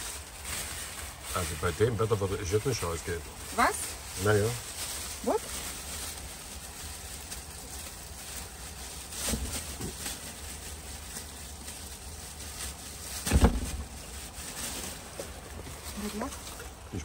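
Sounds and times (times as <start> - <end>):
rubbish rustling: 0.0 - 17.0
thump in cupboard: 13.3 - 13.8.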